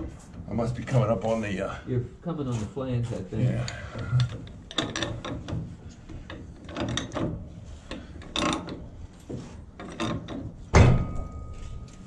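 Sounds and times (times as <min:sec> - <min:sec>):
pipe wrench metallic clicks: 0:03.7 - 0:08.8.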